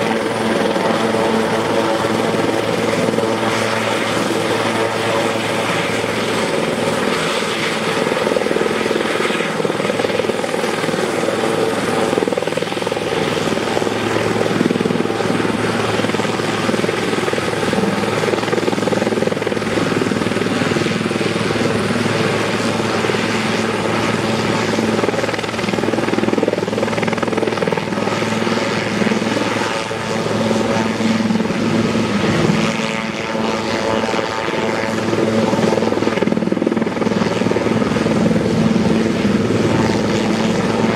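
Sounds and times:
helicopter engine and rotors: 0.0s - 40.9s.

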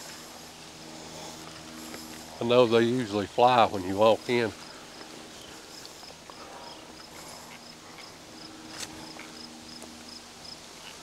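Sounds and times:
crickets chirping: 0.0s - 11.0s.

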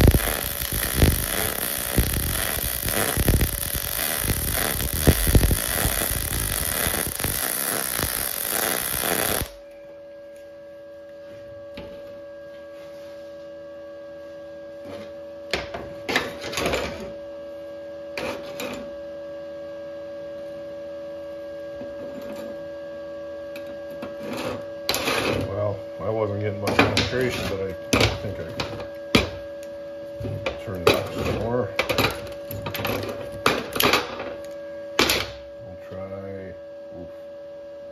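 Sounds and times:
welding arc crackling sizzle: 0.0s - 9.6s
steady hum: 0.0s - 14.4s.

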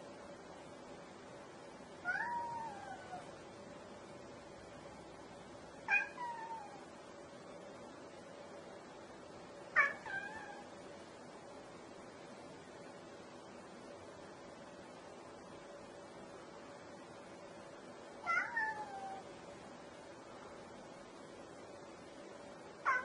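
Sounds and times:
cat meowing: 2.0s - 3.3s, 5.9s - 6.8s, 9.8s - 10.7s, 18.2s - 19.2s.

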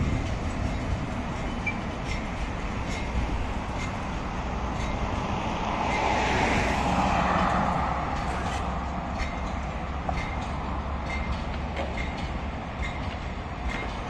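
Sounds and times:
tram rolling on tracks: 0.0s - 14.0s
car passing: 5.3s - 9.0s.

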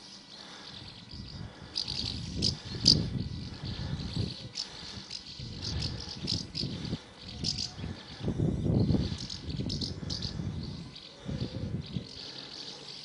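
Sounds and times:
birds twittering: 0.0s - 13.0s.

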